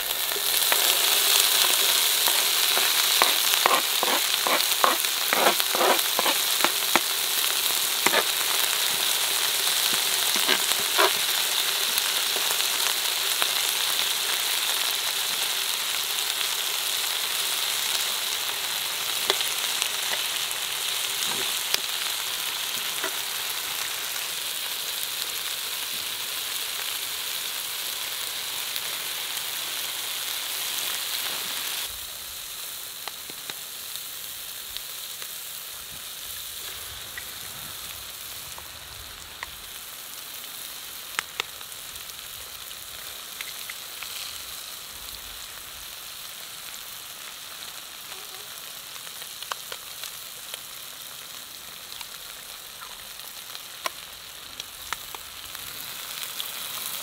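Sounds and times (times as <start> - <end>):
food sizzling in frying pan: 0.0 - 57.0
spoon clicking and scraping pan: 1.6 - 7.1, 8.1 - 8.3, 10.3 - 11.2.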